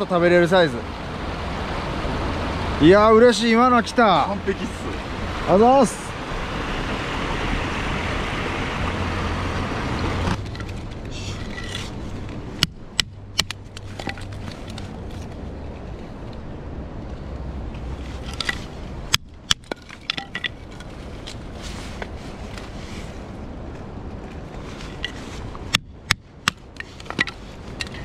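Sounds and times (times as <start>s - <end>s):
stream water rushing: 0.0s - 15.5s.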